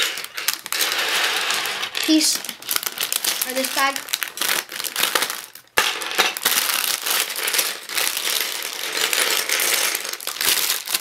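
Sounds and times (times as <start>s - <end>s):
plastic bag crinkling: 0.0s - 11.0s
plastic pieces clattering: 0.0s - 11.0s.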